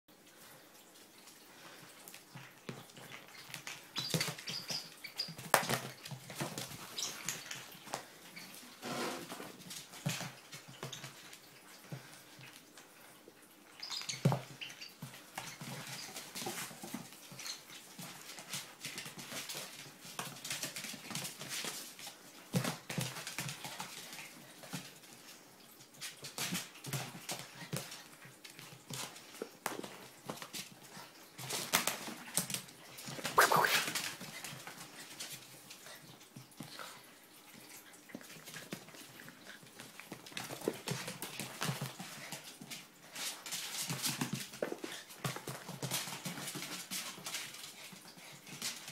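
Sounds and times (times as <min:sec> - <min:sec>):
puppy whining: 0:33.1 - 0:34.0.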